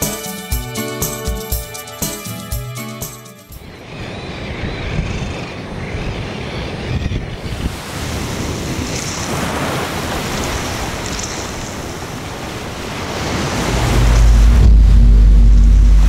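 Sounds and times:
waves washing over pebbles: 7.7 - 16.0
deep low drone: 13.6 - 16.0.

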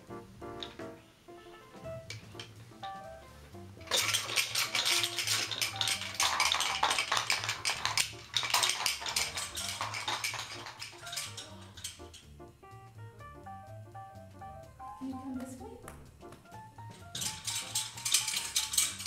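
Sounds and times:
background music low notes: 0.0 - 19.0
plastic toy clattering on floor: 0.6 - 1.0, 2.0 - 12.3, 16.2 - 19.0.

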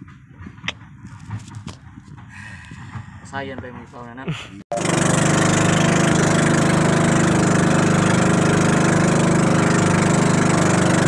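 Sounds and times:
boat engine running: 4.7 - 11.0.

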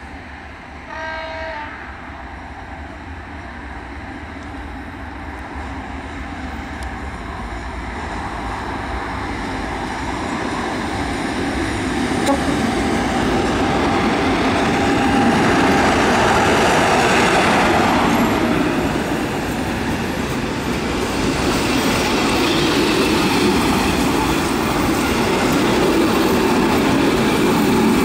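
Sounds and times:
locomotive horn blast: 0.9 - 2.0, 12.2 - 13.3
electric locomotive running: 3.7 - 28.0.

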